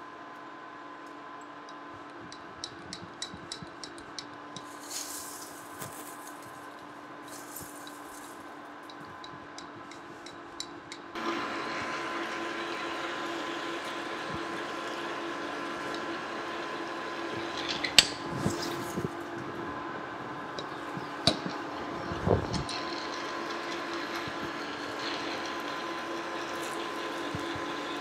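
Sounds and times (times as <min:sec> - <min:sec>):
metal chips clinking: 0:04.6 - 0:10.4
metal lathe running: 0:11.2 - 0:28.0
drill bit cutting metal: 0:20.6 - 0:28.0.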